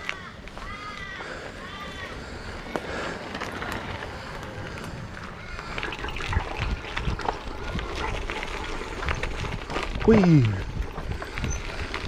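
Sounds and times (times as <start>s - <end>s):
tyres crunching on gravel: 0.0s - 5.8s, 6.4s - 12.0s
bike rattling: 0.0s - 12.0s
wind rumble on microphone: 3.5s - 12.0s.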